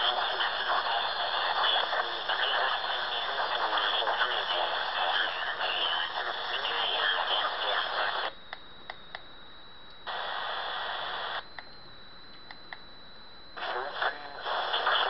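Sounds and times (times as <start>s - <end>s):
garbled radio voice: 0.0s - 8.2s, 13.6s - 15.0s
rushing radio noise: 0.0s - 8.3s, 10.1s - 11.5s, 13.5s - 15.0s
radio hiss: 0.0s - 8.4s, 10.0s - 11.5s, 13.4s - 15.0s.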